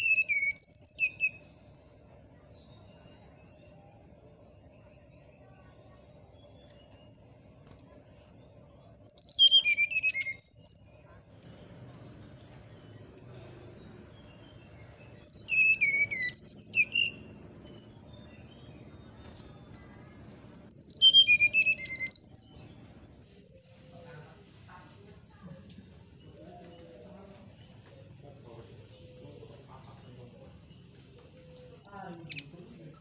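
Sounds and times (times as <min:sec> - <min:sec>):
flycatcher singing: 0:00.0 - 0:24.4, 0:31.6 - 0:33.0.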